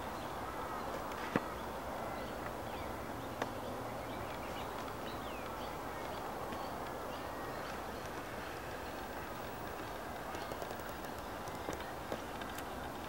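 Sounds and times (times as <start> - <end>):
steady background hiss: 0.0 - 13.0
birds chirping and whistling: 1.6 - 9.2
sharp clicks: 9.3 - 13.0.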